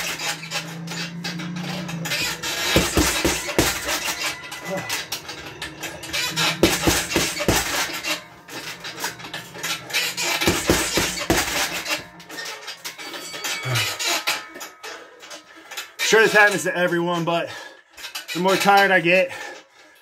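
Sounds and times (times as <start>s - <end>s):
gloves punching heavy bag: 2.1s - 4.9s, 6.2s - 8.2s, 10.2s - 12.0s.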